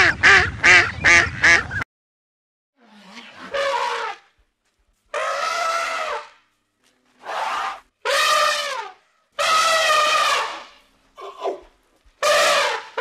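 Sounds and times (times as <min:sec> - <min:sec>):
elephant trumpeting: 0:02.8 - 0:04.3, 0:05.1 - 0:06.4, 0:07.2 - 0:11.6, 0:12.2 - 0:13.0.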